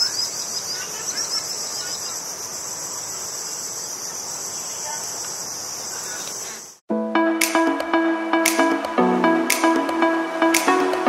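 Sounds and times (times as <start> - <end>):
insects chorus: 0.0 - 6.8.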